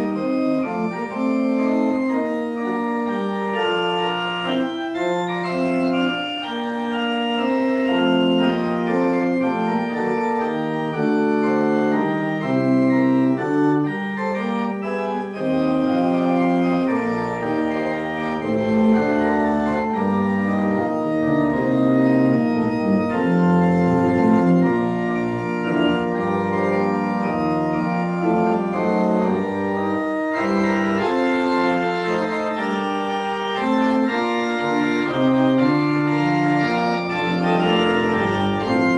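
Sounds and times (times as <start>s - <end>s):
organ playing sustained chords: 0.0s - 38.9s.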